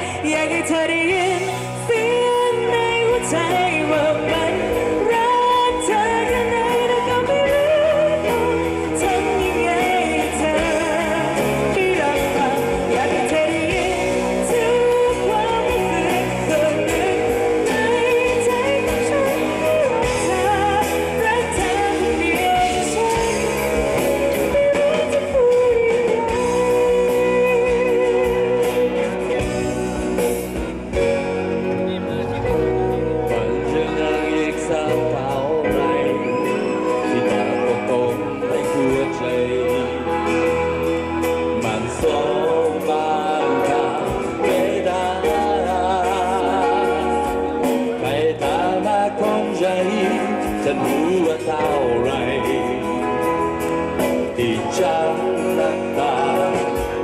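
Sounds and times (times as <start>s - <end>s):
woman singing with vibrato: 0.0s - 29.7s
acoustic and electric guitars: 0.0s - 57.0s
drums: 0.0s - 57.0s
electric bass: 0.0s - 57.0s
keyboard: 0.0s - 57.0s.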